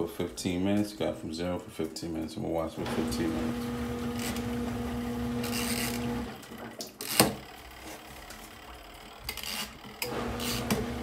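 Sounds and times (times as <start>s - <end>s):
washing machine motor humming: 2.8s - 11.0s.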